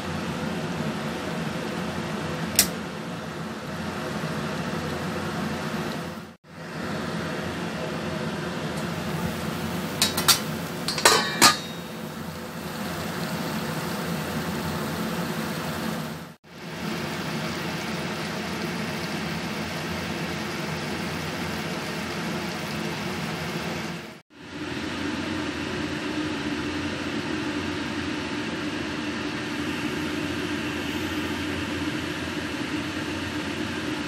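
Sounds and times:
food cooking hiss: 8.8s - 24.1s
metal pan lid clinking: 10.0s - 12.0s.

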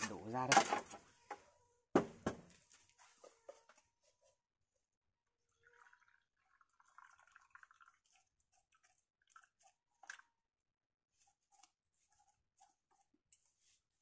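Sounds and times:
soft scrapes: 11.1s - 14.0s.

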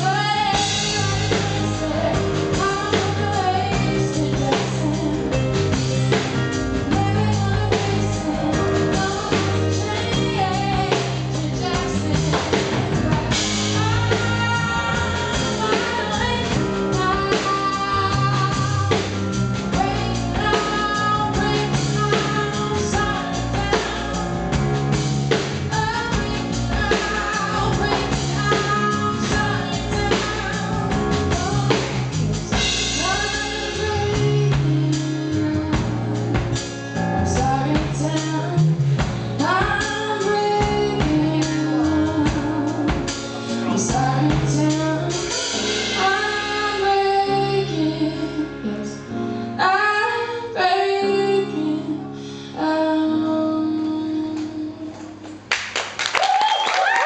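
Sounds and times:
woman singing into microphone: 0.0s - 55.4s
live band playing: 0.0s - 55.5s
drums: 0.0s - 57.0s.

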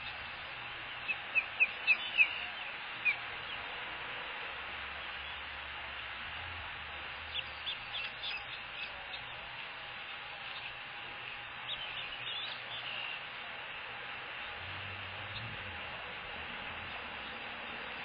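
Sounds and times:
microphone hiss: 0.0s - 18.0s
chicks peeping: 0.9s - 3.7s, 7.1s - 9.6s, 10.4s - 13.4s.

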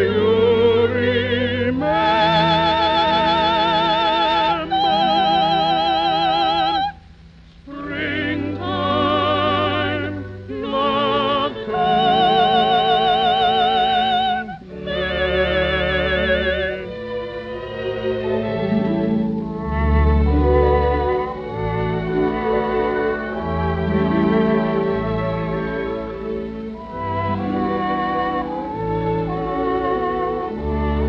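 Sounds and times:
operatic duet singing: 0.0s - 7.0s, 7.7s - 19.1s
orchestral accompaniment: 0.0s - 31.0s.

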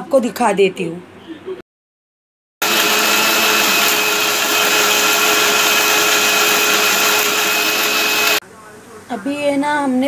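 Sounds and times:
mixer grinder whirring: 2.6s - 8.4s.

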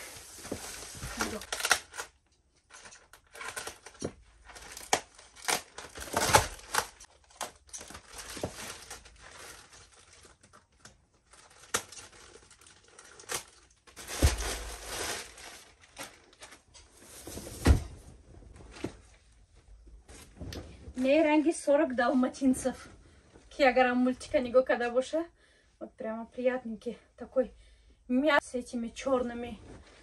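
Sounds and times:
plastic wrapping crinkling and tearing: 0.0s - 17.0s.

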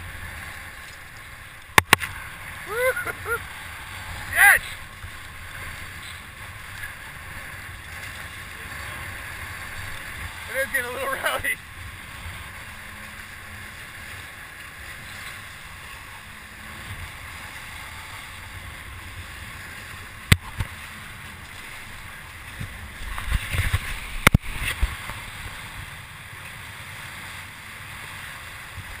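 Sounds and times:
water splashing: 0.0s - 29.0s
hulls rushing through water: 2.1s - 7.6s
wind on microphone: 22.5s - 25.8s.

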